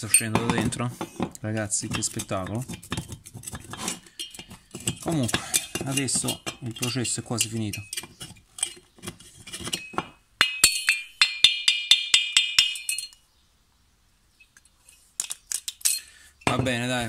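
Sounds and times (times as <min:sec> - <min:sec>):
metal tool clicking and scraping: 0:00.0 - 0:13.2, 0:14.5 - 0:16.1
metal part knocking on workbench: 0:00.3 - 0:01.3.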